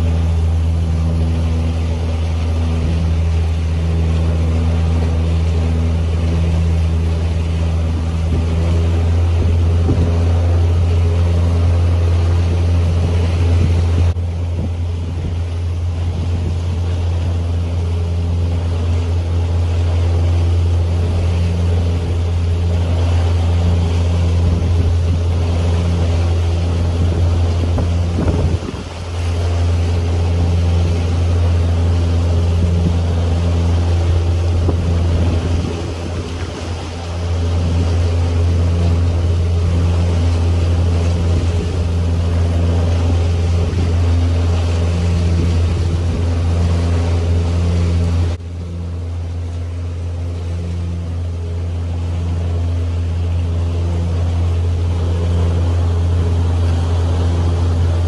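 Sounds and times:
motorboat engine drone: 0.0 - 58.0
water washing past hull: 0.0 - 58.0
wind buffeting microphone: 5.6 - 18.7, 20.9 - 48.4.

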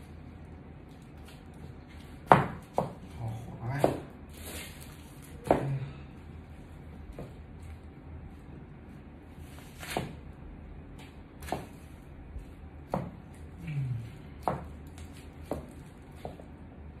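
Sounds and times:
low steady hum: 0.0 - 17.0
heels crunching apple on tiles: 14.4 - 16.6.

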